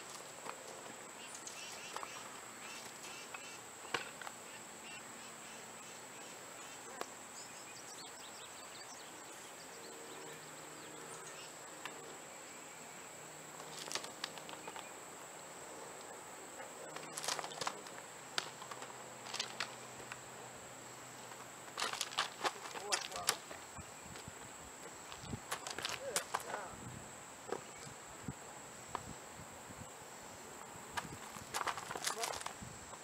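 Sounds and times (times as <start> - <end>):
insects droning: 0.0 - 33.0
hooves crunching on gravel: 13.6 - 15.0, 16.8 - 20.2, 21.2 - 26.8, 30.9 - 33.0.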